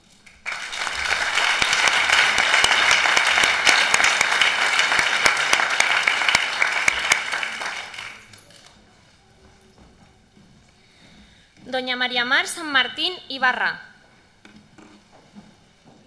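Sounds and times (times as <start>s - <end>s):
audience applauding: 0.2s - 8.4s
single sharp claps: 0.5s - 8.2s.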